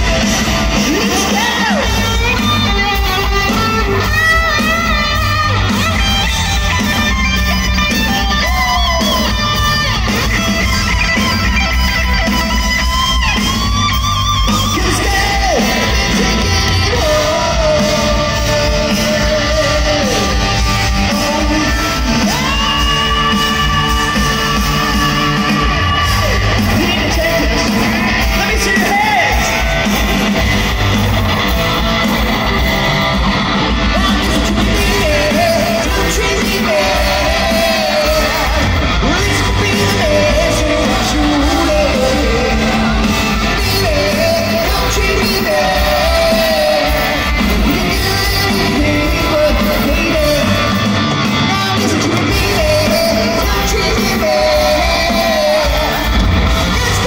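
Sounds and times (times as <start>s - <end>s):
drums: 0.0s - 57.0s
electric guitars: 0.0s - 57.0s
person singing: 12.2s - 30.6s, 31.4s - 57.0s.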